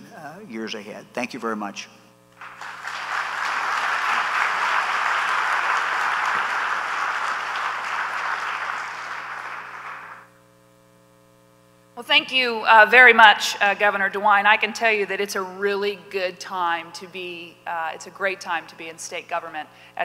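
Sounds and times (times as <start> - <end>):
audience applauding: 2.4 - 10.3.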